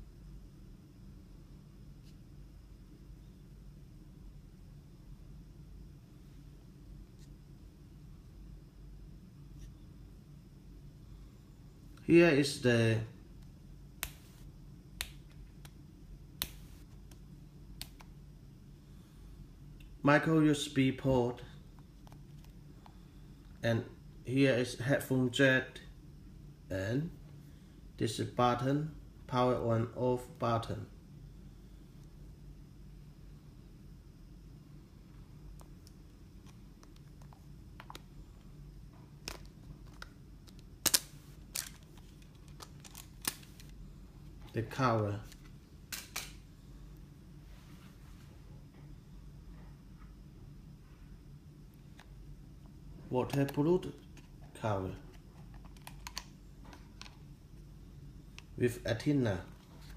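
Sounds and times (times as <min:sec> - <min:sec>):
plastic clips snapping: 0:39.2 - 0:41.8, 0:42.5 - 0:43.7.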